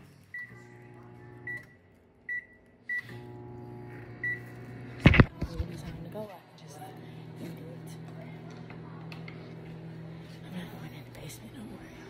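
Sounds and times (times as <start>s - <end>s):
microwave oven humming: 0.0s - 12.0s
keypad beeps: 1.4s - 3.2s.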